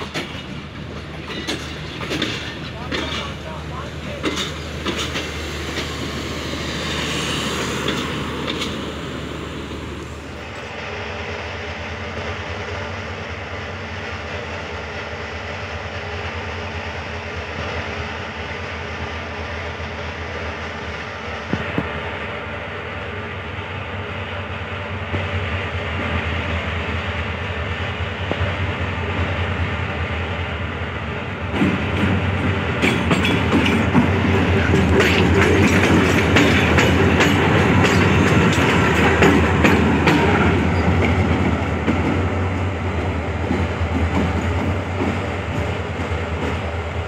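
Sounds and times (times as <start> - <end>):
train wheels clacking over rail joints: 0.0 - 9.0, 31.5 - 47.0
diesel locomotive engine humming: 0.0 - 47.0.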